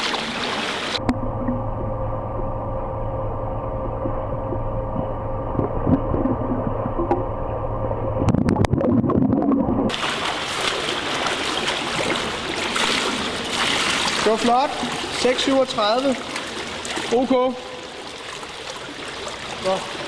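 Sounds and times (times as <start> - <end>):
swimmer splashing in pool: 0.0 - 1.0, 9.9 - 20.0
muffled underwater hum: 0.0 - 20.0
underwater bubbling of swim strokes: 3.6 - 20.0.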